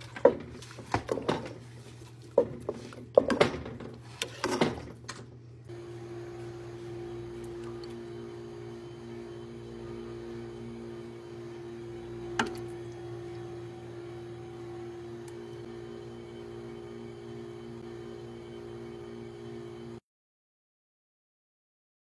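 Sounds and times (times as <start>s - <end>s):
droning hum of held tones: 5.2s - 20.0s.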